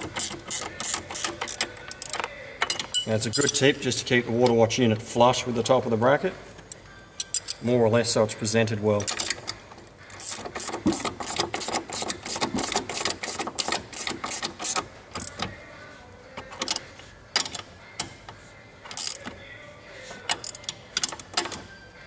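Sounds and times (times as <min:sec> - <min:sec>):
spanners clicking on metal: 0:00.0 - 0:03.7, 0:07.2 - 0:07.6, 0:09.0 - 0:15.5, 0:18.9 - 0:19.4, 0:20.3 - 0:21.7.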